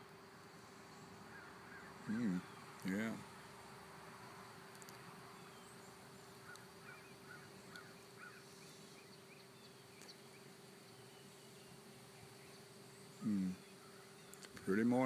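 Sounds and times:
faint hum: 0:00.0 - 0:15.0
distant crows cawing: 0:01.2 - 0:04.4, 0:05.1 - 0:08.6, 0:13.7 - 0:14.2.

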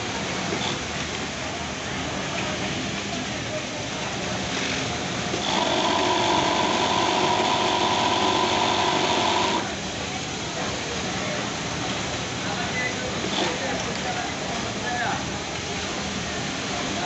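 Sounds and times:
sewing machine whine: 0:05.3 - 0:09.7.

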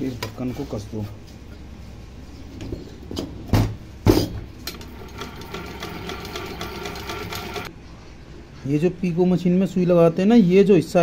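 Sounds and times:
sewing machine ticking and whining: 0:04.7 - 0:07.7.

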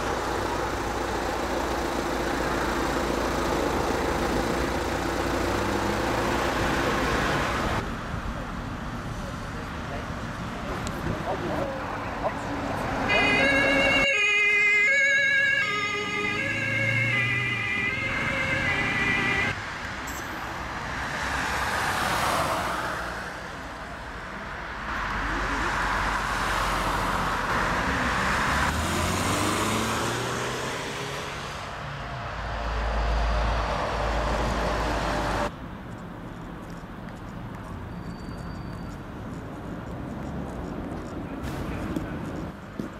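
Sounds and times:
emergency vehicle siren: 0:13.0 - 0:19.6.

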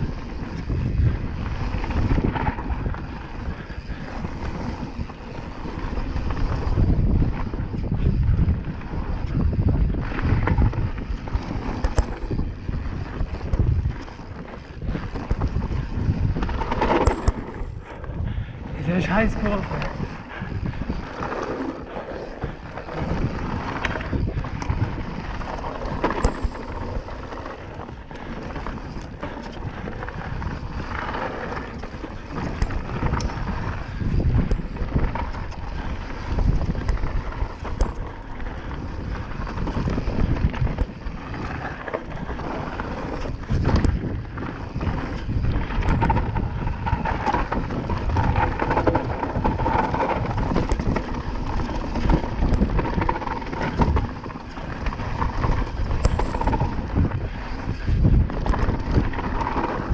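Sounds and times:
bike rattling: 0:00.0 - 0:59.9
bike tyres rolling over gravel: 0:00.0 - 0:59.9
wind noise on microphone: 0:00.0 - 0:59.9.

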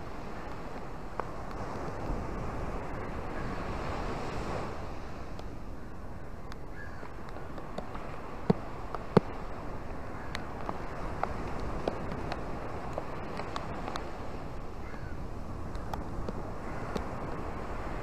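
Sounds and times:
small waves washing onto shore: 0:00.0 - 0:18.0.

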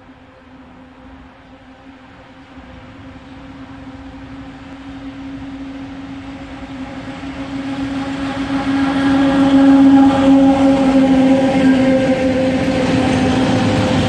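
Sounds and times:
electric locomotive humming: 0:00.0 - 0:14.0.

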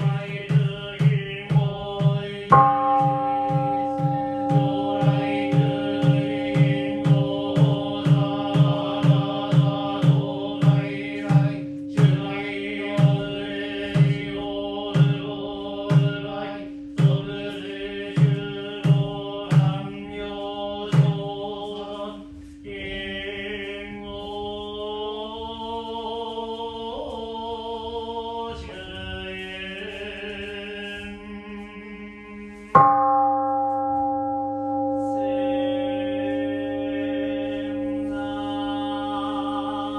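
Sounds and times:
regular percussion beat: 0:00.0 - 0:25.0
priests chanting: 0:00.0 - 0:39.9
bowl bell ringing: 0:02.5 - 0:22.3, 0:32.7 - 0:39.9.

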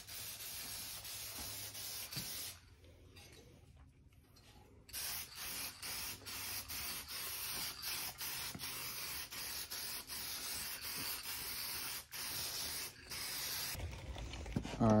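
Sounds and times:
spray paint can hissing: 0:00.0 - 0:02.6, 0:04.9 - 0:13.8.

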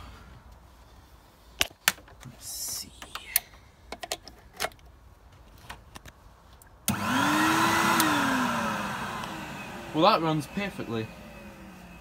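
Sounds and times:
vacuum cleaner motor whining: 0:06.9 - 0:12.0.

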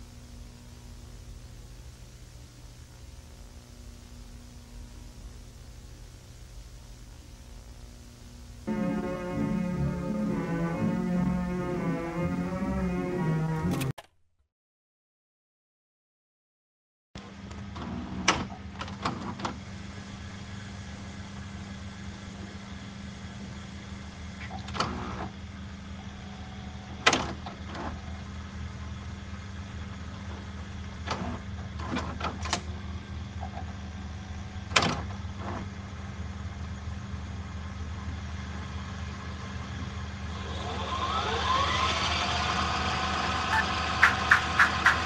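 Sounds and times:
low droning hum: 0:00.0 - 0:13.8
rising tones: 0:08.6 - 0:13.9, 0:40.3 - 0:45.0.

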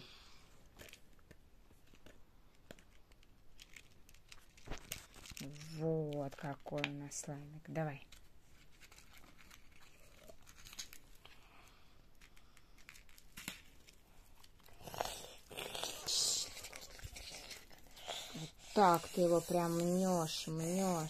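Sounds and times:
slime squishing and crackling: 0:01.8 - 0:07.1, 0:12.2 - 0:21.0.

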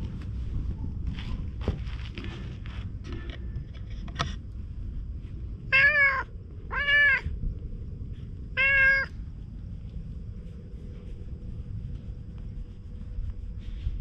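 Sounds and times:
cat meowing: 0:05.7 - 0:07.3, 0:08.6 - 0:09.2.

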